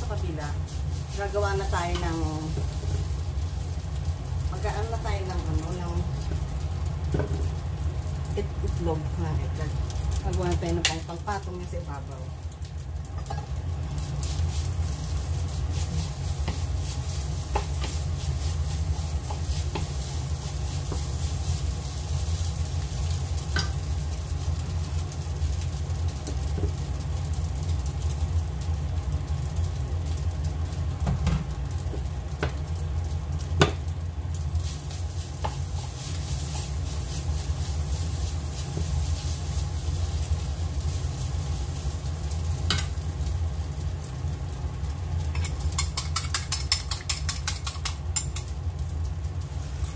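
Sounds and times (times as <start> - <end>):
rice sizzling in frying pan: 0.0 - 49.9
steady low hum: 0.0 - 49.9
spatula clicking on pan: 45.4 - 48.5.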